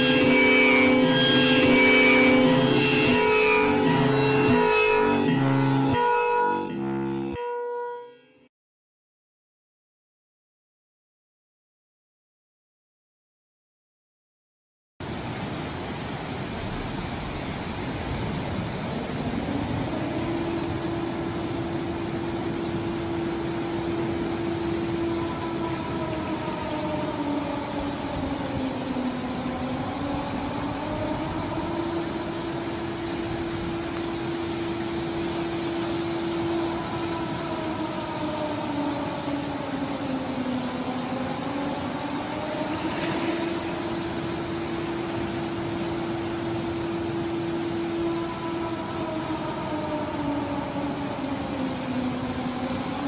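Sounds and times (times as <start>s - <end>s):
emergency siren wailing: 0.0s - 8.4s, 17.6s - 53.0s
constant hiss: 15.0s - 53.0s.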